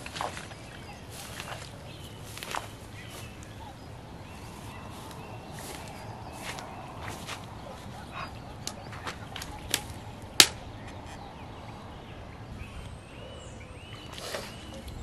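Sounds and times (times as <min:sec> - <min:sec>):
footsteps crunching on frosty grass: 0:00.0 - 0:08.2
sharp snaps: 0:08.6 - 0:11.0.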